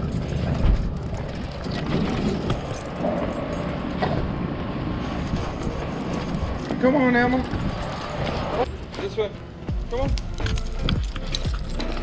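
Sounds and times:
rumbling rustling camera movement: 0.0s - 8.9s.

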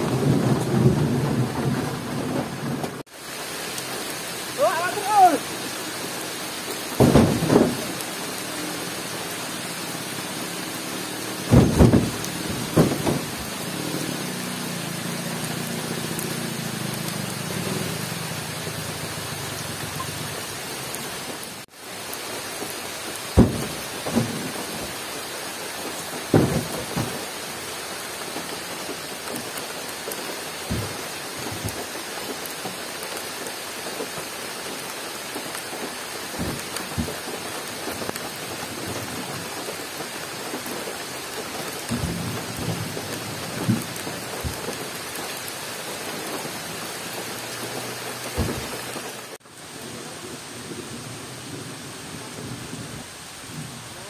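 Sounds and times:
rain falling: 0.0s - 54.0s
heavy thuds of fruit bunches: 7.0s - 7.9s, 11.5s - 13.5s, 23.4s - 25.0s, 26.3s - 27.2s, 30.7s - 31.9s, 36.4s - 37.4s, 48.4s - 48.8s.

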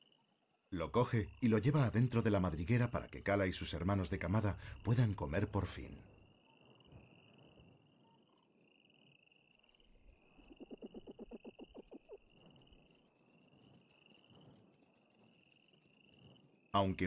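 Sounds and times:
fox chattering call: 10.4s - 12.2s.

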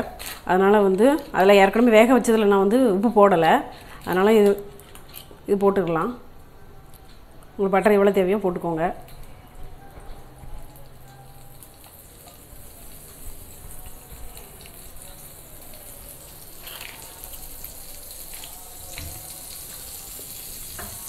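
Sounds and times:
butter sizzling in frying pan: 11.6s - 21.0s.

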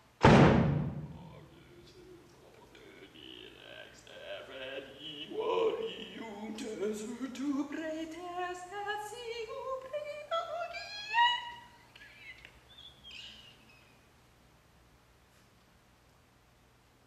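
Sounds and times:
faint vocal sounds: 1.1s - 13.4s.

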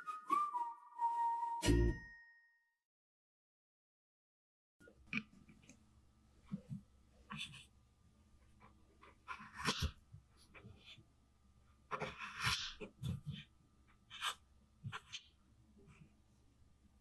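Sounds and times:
knife cutting carrot on board: 11.9s - 13.5s.

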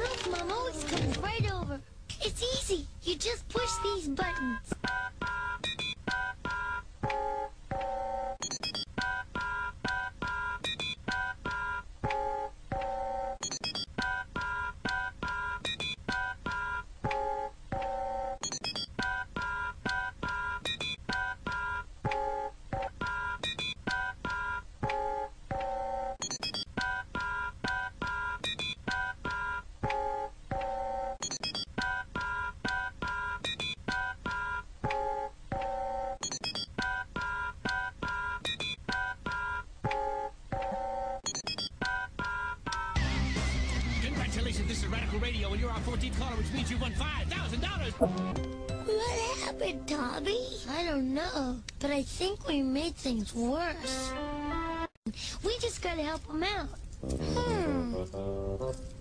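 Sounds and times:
electronic beeping tones: 3.6s - 43.0s.

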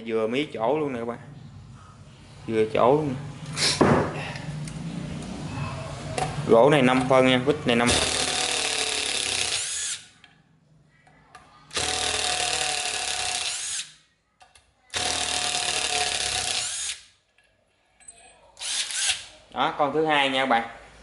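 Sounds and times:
impact driver driving screw into wood: 7.9s - 10.0s, 11.7s - 13.9s, 14.9s - 17.0s, 18.6s - 19.3s.

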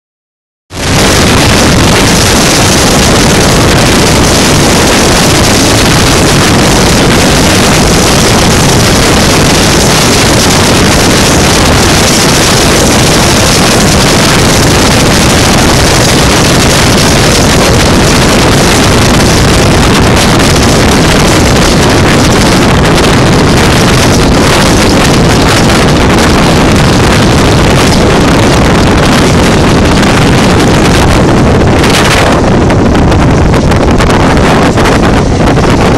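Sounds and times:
train wheels rumbling on rails: 0.7s - 35.9s
wind buffeting a microphone: 0.7s - 35.9s.

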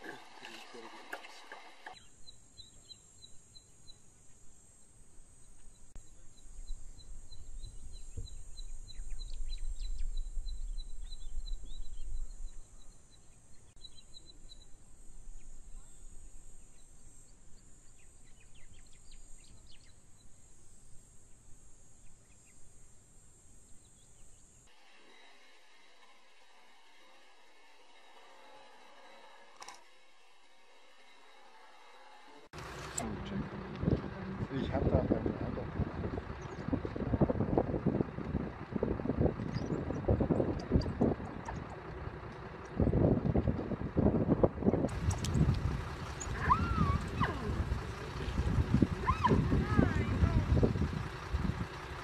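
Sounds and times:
high insect drone: 2.0s - 33.0s
low rumble: 32.6s - 52.0s.

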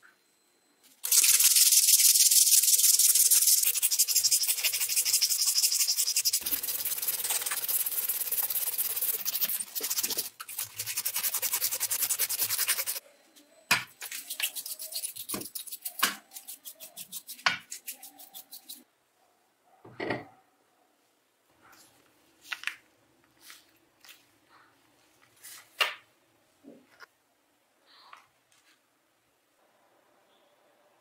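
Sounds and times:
abrasive cloth rubbing metal rotor: 1.0s - 13.0s.

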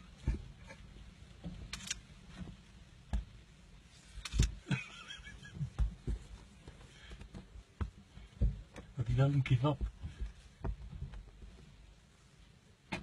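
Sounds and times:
thumping on car windscreen: 5.4s - 11.7s.

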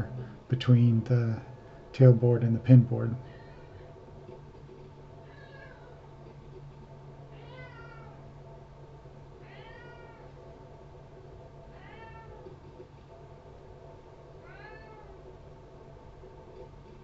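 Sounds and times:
steady low hum: 0.0s - 17.0s
cat meowing: 5.2s - 6.0s, 7.3s - 8.2s, 9.4s - 10.3s, 11.7s - 12.4s, 14.4s - 15.2s.

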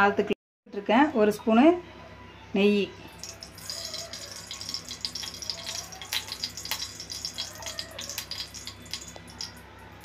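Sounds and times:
ghee sizzling in hot oil: 3.2s - 9.6s.

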